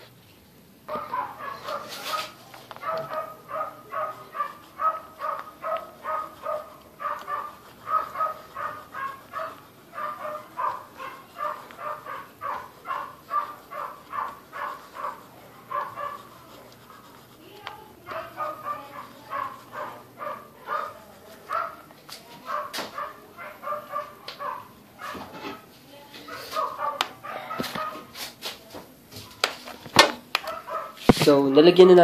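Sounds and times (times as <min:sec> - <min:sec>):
animal calling: 0:00.9 - 0:17.3.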